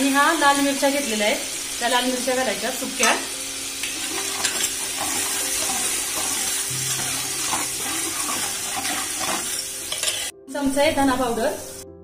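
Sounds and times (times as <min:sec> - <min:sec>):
hot oil sizzling: 0:00.0 - 0:10.3
ladle stirring: 0:03.8 - 0:10.3.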